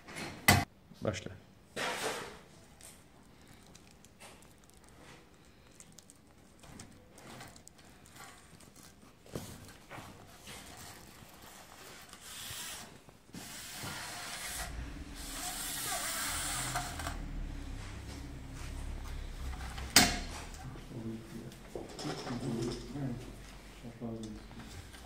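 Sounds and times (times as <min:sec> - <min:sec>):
strip scraping along metal frame: 0:09.8 - 0:20.9
low rumble: 0:14.2 - 0:21.9.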